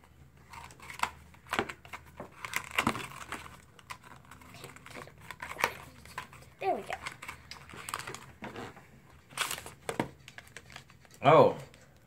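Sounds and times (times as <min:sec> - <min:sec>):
packaging crinkling and tearing: 0:00.4 - 0:11.2.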